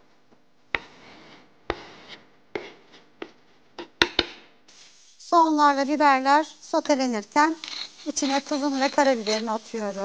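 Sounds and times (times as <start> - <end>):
knife scraping cutting board: 0.8 - 3.1, 7.6 - 10.0.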